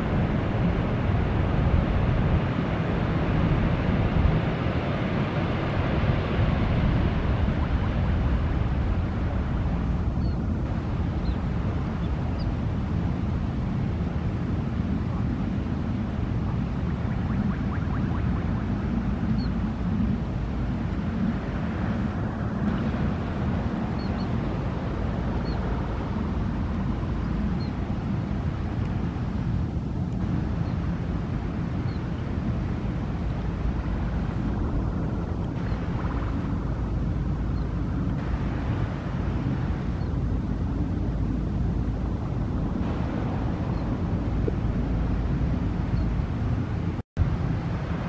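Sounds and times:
jet engines rumbling: 0.0s - 48.0s.

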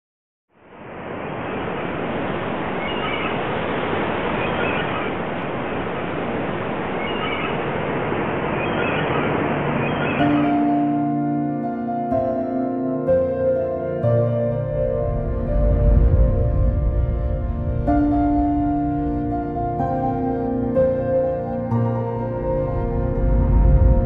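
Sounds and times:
sea surf: 0.6s - 24.0s
soft music: 9.8s - 24.0s.

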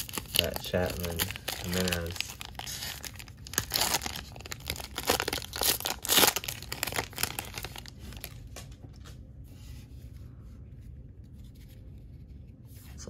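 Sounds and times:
foil wrapper tearing and crinkling: 0.0s - 8.4s.

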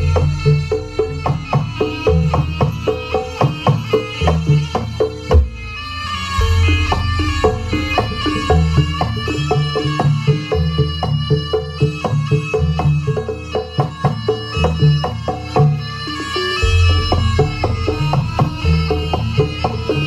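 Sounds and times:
high melody line: 0.0s - 13.2s, 14.4s - 20.0s
hand drum strokes: 0.0s - 20.0s
pitched gong notes: 6.4s - 9.4s.

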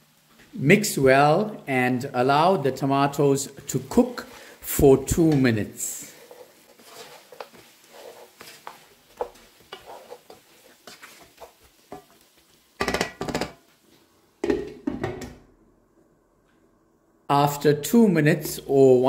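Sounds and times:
wooden spatula scraping frying pan: 3.6s - 13.7s
glass lid clattering on pan: 12.8s - 13.6s.

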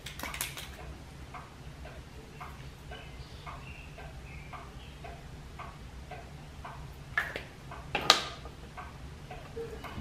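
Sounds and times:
steady light ticking: 0.8s - 7.9s, 8.7s - 10.0s
low machinery hum: 8.5s - 10.0s.

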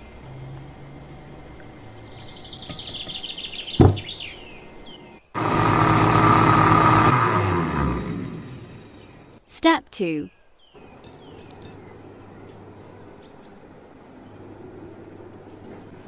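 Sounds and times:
electric blender motor running: 5.4s - 9.4s.

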